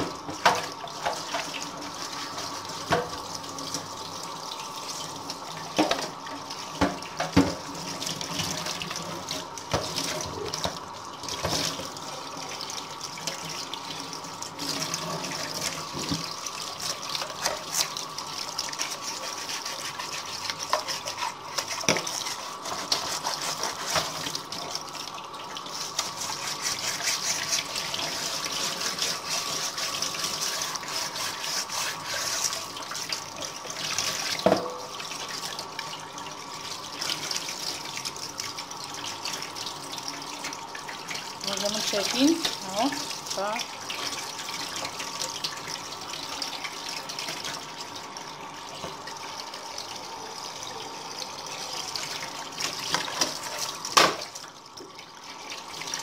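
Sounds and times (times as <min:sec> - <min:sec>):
tap water running into sink: 0:00.0 - 0:56.0
scrubbing by hand: 0:18.8 - 0:24.3, 0:25.7 - 0:32.7.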